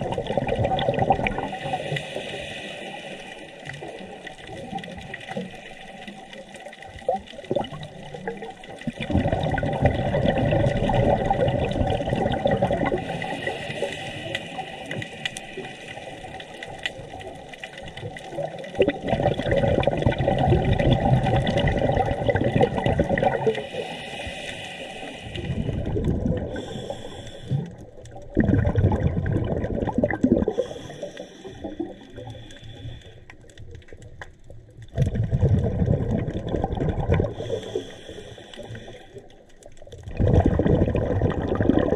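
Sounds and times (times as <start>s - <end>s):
diver exhaling bubbles underwater: 0.0s - 5.7s, 6.9s - 24.4s, 25.3s - 32.4s, 34.9s - 38.9s, 39.9s - 41.9s.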